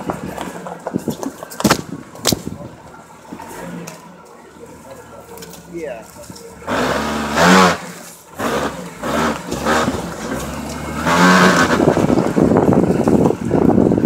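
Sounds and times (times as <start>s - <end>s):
tyre and road rumble: 0.0s - 14.0s
car engine revving: 6.4s - 14.0s.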